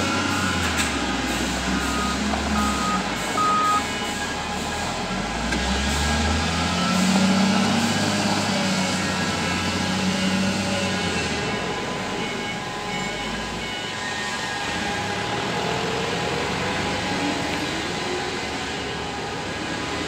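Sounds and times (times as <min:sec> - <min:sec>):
reversing alarm beeping: 0:00.0 - 0:19.6
diesel engine running: 0:00.0 - 0:20.0.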